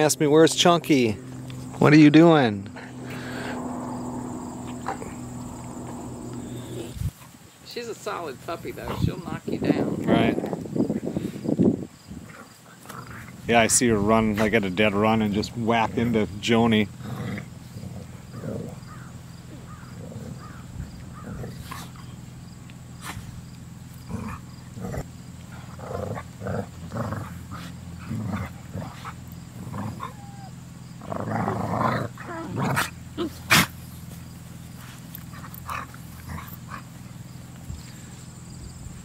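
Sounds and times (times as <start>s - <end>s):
dogs growling and grunting: 2.7s - 7.2s, 12.2s - 14.6s, 16.9s - 22.2s, 24.0s - 33.9s, 34.9s - 37.6s.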